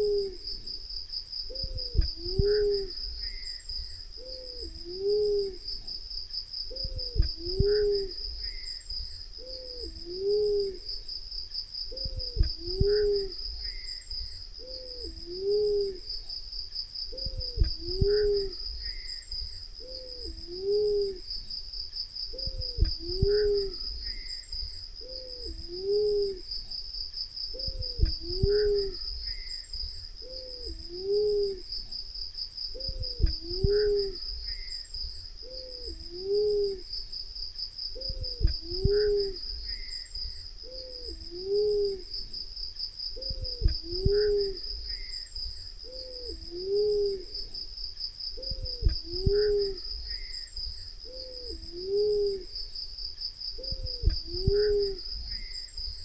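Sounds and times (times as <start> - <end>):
dove cooing: 0.0 - 0.7, 1.5 - 3.4, 4.2 - 5.9, 6.7 - 8.7, 9.4 - 11.0, 11.9 - 13.9, 14.6 - 16.1, 17.1 - 19.1, 19.8 - 21.3, 22.3 - 24.3, 25.0 - 26.5, 27.5 - 29.5, 30.2 - 31.7, 32.7 - 34.6, 35.4 - 36.9, 37.9 - 39.9, 40.6 - 42.4, 43.2 - 45.1, 45.8 - 47.6, 48.4 - 50.3, 51.0 - 52.6, 53.6 - 55.5
high insect chorus: 0.0 - 56.0.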